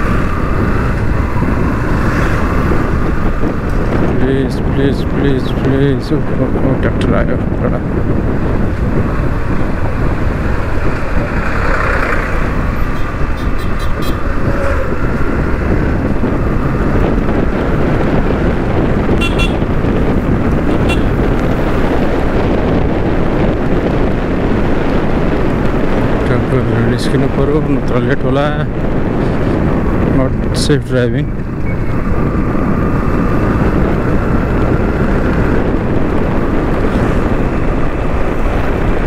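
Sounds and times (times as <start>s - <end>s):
motorcycle engine rumble: 0.0s - 39.0s
wind noise: 0.0s - 39.0s
vehicle horn toots: 13.0s - 14.8s, 19.1s - 19.7s, 20.7s - 21.2s.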